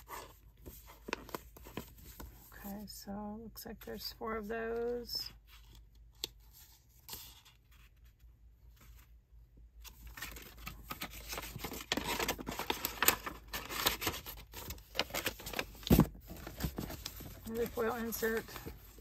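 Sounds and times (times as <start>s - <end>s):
packaging rustling and tearing: 9.9s - 19.0s.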